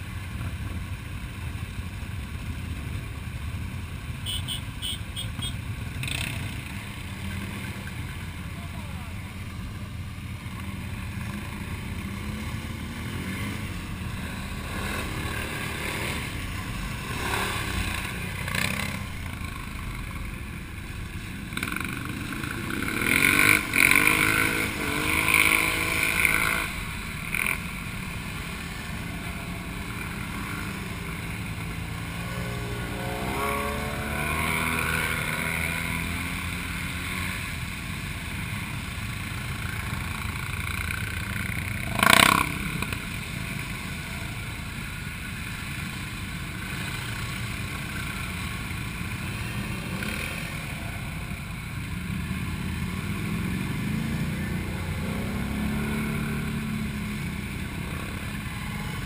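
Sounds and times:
quad bike engines revving: 0:00.0 - 0:59.0.

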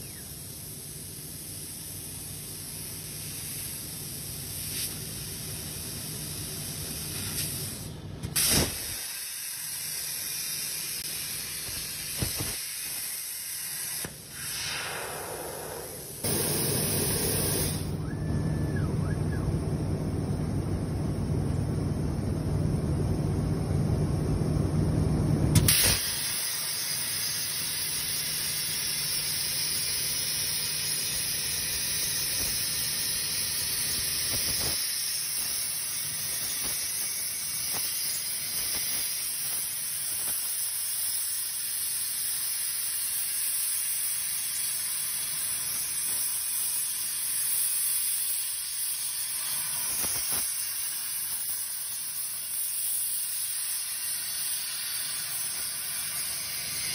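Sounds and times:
plasma torch cutting metal: 0:00.0 - 0:18.0, 0:25.6 - 0:56.9
low machine rumble: 0:14.9 - 0:25.6.

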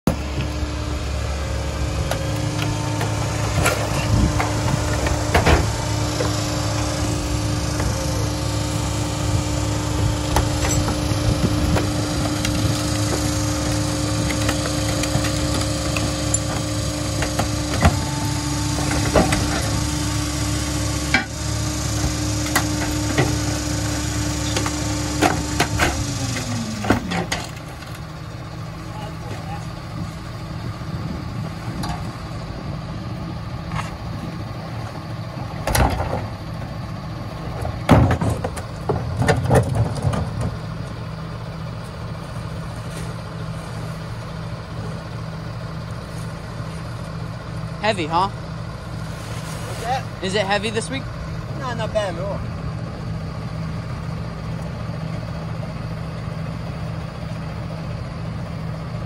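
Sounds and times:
garbage truck diesel engine: 0:00.0 - 0:59.0
trash carts banging on hopper: 0:01.2 - 0:28.8, 0:35.5 - 0:41.3.

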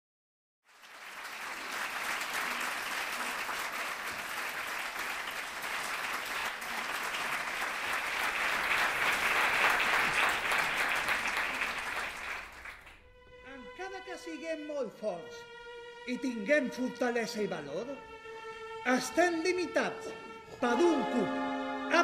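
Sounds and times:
audience applauding: 0:00.7 - 0:13.0.

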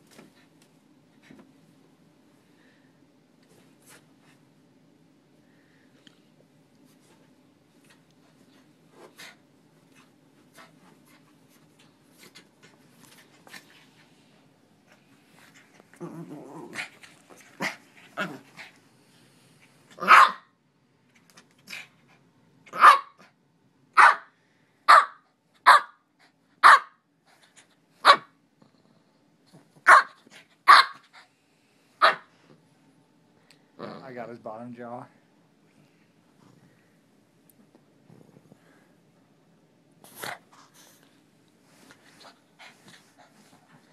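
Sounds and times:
dog growling: 0:15.8 - 0:18.8, 0:33.8 - 0:34.2, 0:38.1 - 0:38.8
dog barking: 0:20.0 - 0:20.5, 0:22.8 - 0:23.2, 0:24.0 - 0:24.3, 0:24.9 - 0:26.0, 0:26.6 - 0:27.0, 0:29.8 - 0:31.0, 0:32.0 - 0:32.3.

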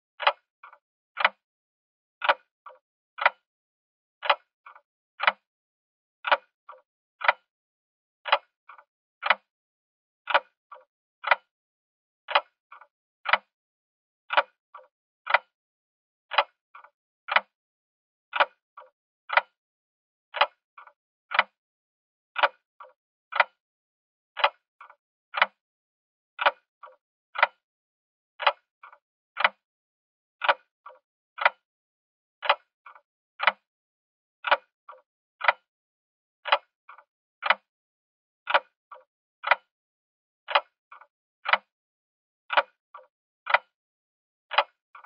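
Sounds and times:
clock ticking: 0:03.2 - 0:03.4, 0:04.2 - 0:05.4, 0:06.2 - 0:07.4, 0:08.2 - 0:09.4, 0:10.3 - 0:11.4, 0:14.3 - 0:15.5, 0:16.3 - 0:17.5, 0:18.3 - 0:19.5, 0:22.4 - 0:23.5, 0:26.4 - 0:27.6, 0:28.4 - 0:28.6, 0:30.4 - 0:31.6, 0:32.4 - 0:33.6, 0:34.4 - 0:35.6, 0:38.5 - 0:39.6, 0:40.5 - 0:41.7, 0:42.5 - 0:43.7, 0:44.5 - 0:44.8.

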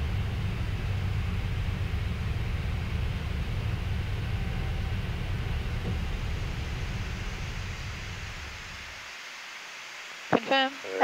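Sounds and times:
aircraft cockpit drone: 0:00.0 - 0:09.1.

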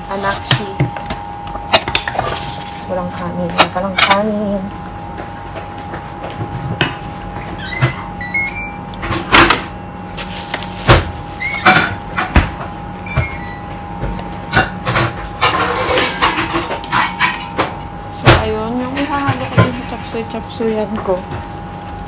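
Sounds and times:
mechanical hum: 0:00.0 - 0:22.0
pots and utensils clinking: 0:14.6 - 0:17.8.

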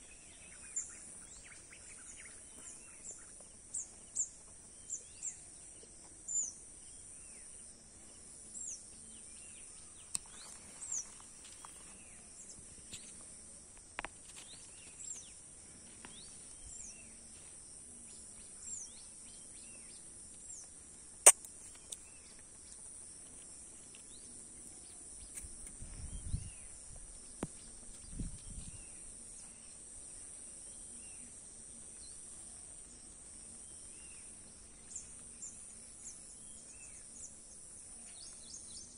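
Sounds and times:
sharp click: 0:21.2 - 0:22.0.

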